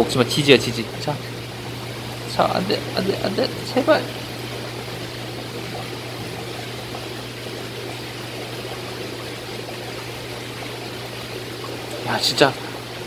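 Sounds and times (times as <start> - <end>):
steady low hum: 0.0 - 13.0
water trickling and pouring: 0.0 - 13.0.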